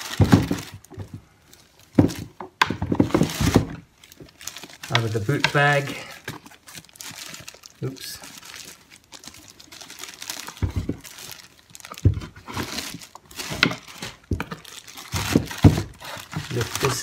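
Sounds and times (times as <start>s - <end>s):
plastic packaging rustling and crinkling: 0.0s - 17.0s
dull handling bumps: 1.9s - 4.3s.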